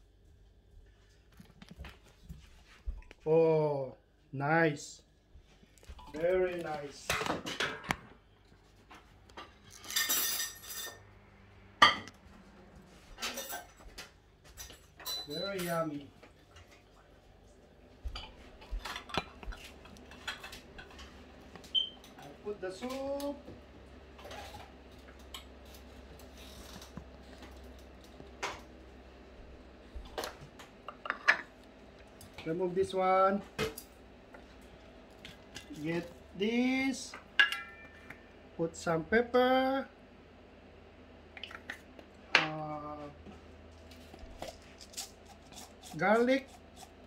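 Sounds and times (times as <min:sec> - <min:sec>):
low steady hum: 0:00.0 - 0:47.0
metal utensils clinking on dishes: 0:09.7 - 0:11.0, 0:13.2 - 0:13.8, 0:14.6 - 0:15.8, 0:37.4 - 0:38.2.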